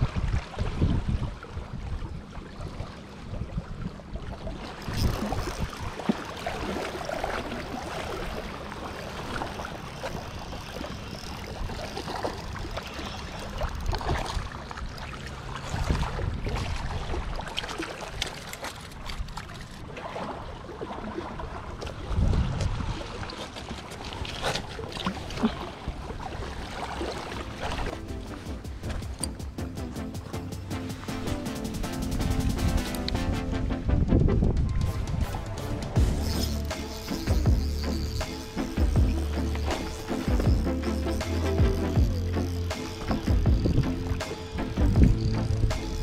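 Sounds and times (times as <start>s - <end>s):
wind gusts on microphone: 0.0s - 6.0s, 15.6s - 17.3s, 22.0s - 23.2s, 33.8s - 36.1s
water lapping at shore: 0.0s - 33.1s, 34.8s - 46.0s.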